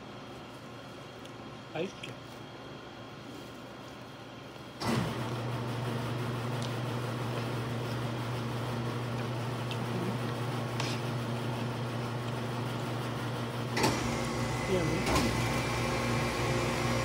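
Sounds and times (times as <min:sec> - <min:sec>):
appliance motor and fan humming: 0:00.0 - 0:17.0.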